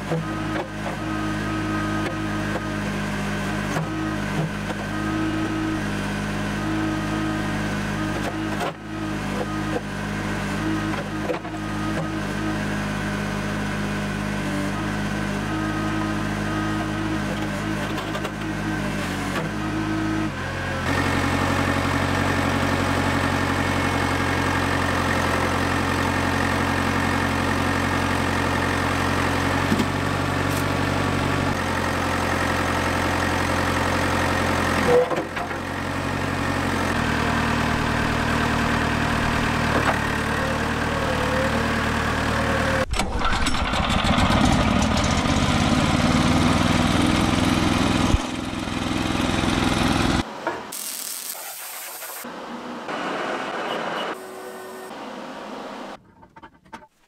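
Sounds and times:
small petrol engine: 0:00.0 - 0:52.2
diesel engine under hydraulic load: 0:00.0 - 0:56.4.

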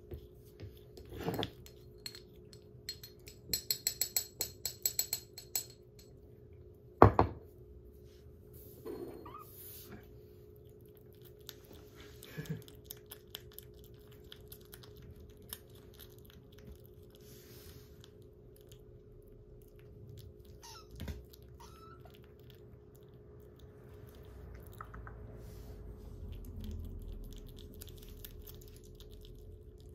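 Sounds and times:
knocks on ceramic bowl: 0:07.0 - 0:07.4
kitten wet chewing clicks: 0:10.5 - 0:17.2, 0:18.0 - 0:25.4, 0:26.2 - 0:29.9.

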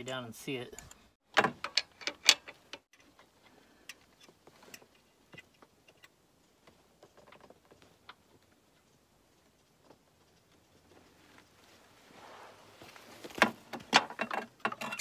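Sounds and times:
metal clatter: 0:13.8 - 0:15.0.

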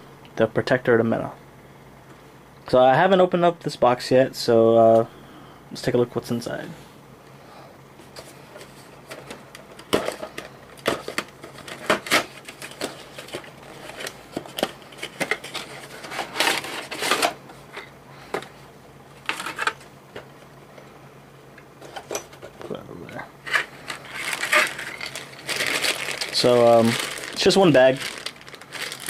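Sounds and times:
rustling: 0:23.4 - 0:29.0.

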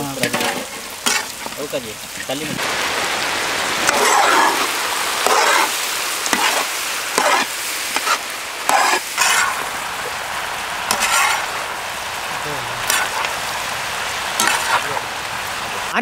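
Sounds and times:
meat sizzling in oil: 0:00.0 - 0:16.0
metal spatula scraping wok: 0:00.1 - 0:01.6, 0:03.8 - 0:15.0.

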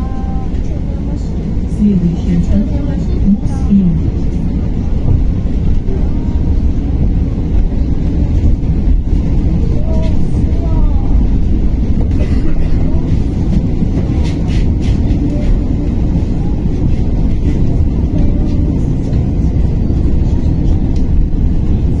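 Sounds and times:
bus road noise rumble: 0:00.0 - 0:22.0.

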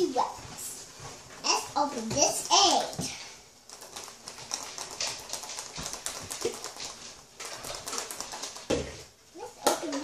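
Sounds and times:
toy rattling inside egg: 0:03.6 - 0:09.0.

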